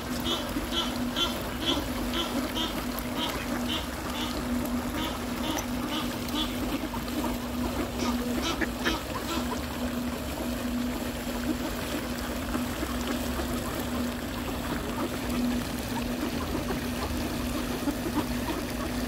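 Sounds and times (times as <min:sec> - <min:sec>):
ducks dabbling in water: 0:00.0 - 0:19.0.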